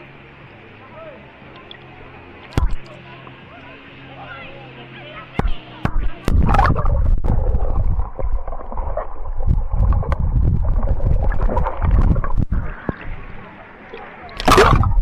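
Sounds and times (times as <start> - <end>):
water gurgling: 0.0 - 3.2, 3.8 - 15.0
muffled underwater rumbling: 5.4 - 15.0.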